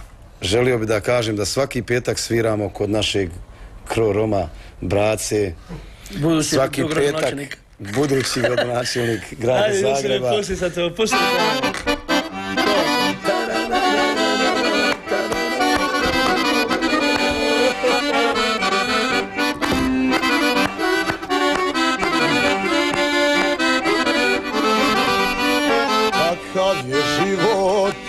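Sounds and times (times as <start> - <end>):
piano accordion playing: 11.0 - 28.0.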